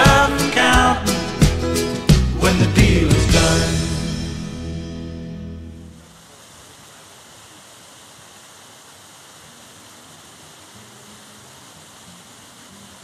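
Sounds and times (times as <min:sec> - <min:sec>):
creek rushing over boulders: 0:05.9 - 0:13.0.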